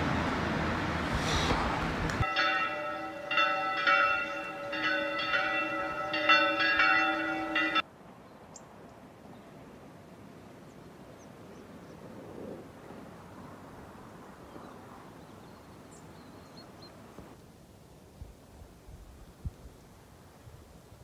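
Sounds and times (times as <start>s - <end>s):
church bells ringing: 2.2s - 7.8s.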